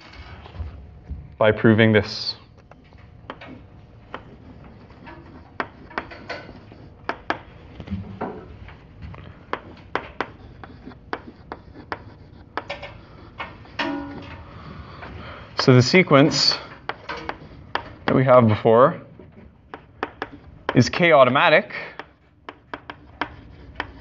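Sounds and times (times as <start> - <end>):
low room hum: 0.0 - 24.0
chalk tapping and scratching: 2.1 - 18.6, 19.6 - 24.0.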